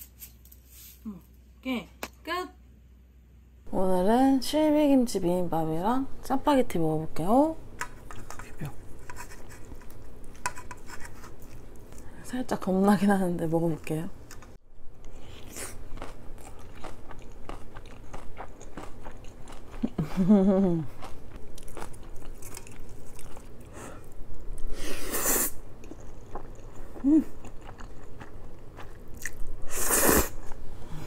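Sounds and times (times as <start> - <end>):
close chewing with wet crunches: 15.4 - 20.0, 21.0 - 23.7, 25.8 - 29.5
person humming: 27.0 - 27.3.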